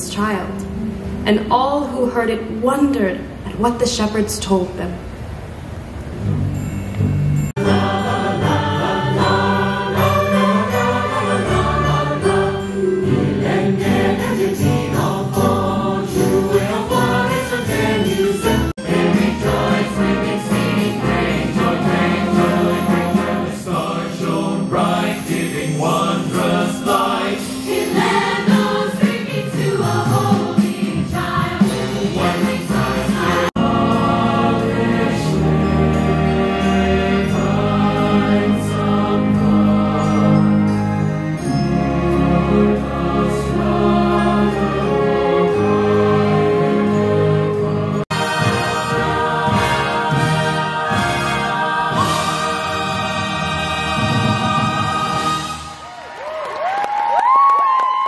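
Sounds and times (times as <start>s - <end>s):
choir singing with orchestra: 7.5s - 55.9s.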